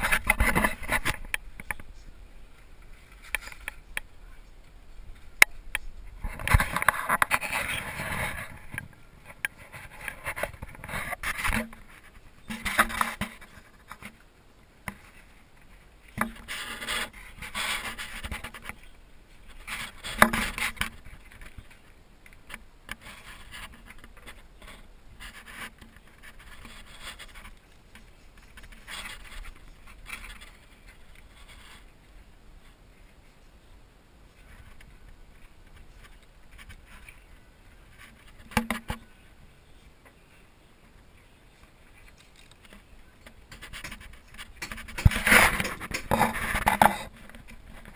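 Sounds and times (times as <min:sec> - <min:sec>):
scraping and rubbing: 0:00.0 - 0:14.2, 0:14.9 - 0:32.0, 0:41.8 - 0:47.9.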